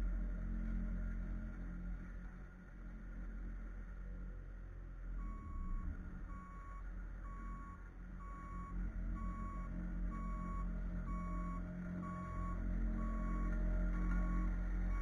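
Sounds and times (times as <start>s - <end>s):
low engine rumble: 0.0s - 15.0s
reverse backup alarm beeping: 6.3s - 15.0s.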